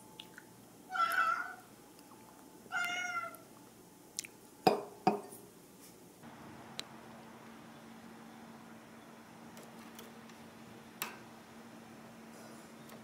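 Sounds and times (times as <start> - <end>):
cat meowing: 0.9 - 1.6, 2.7 - 3.4.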